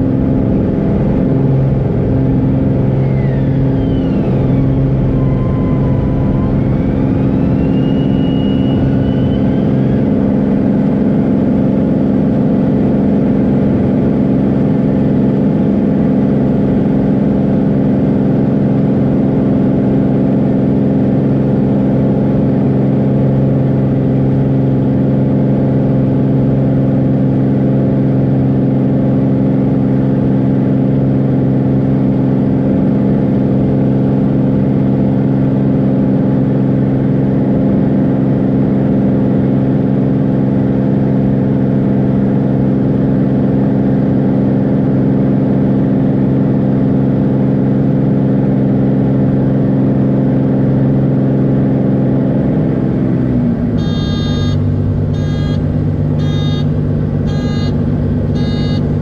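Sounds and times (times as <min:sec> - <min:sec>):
propeller plane engine drone: 0:00.0 - 0:59.0.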